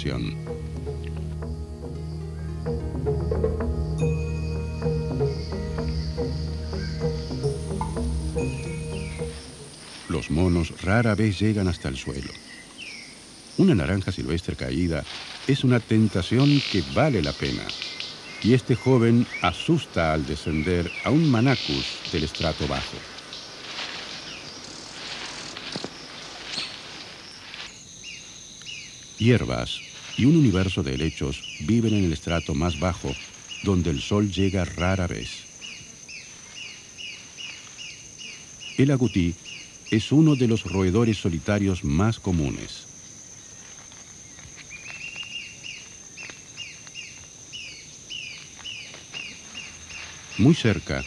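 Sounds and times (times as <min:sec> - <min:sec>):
high-pitched insect drone: 0:00.0 - 0:10.7
bird chirping: 0:00.0 - 0:51.0
high insect trill: 0:00.0 - 0:51.0
rough hiss: 0:14.8 - 0:27.9.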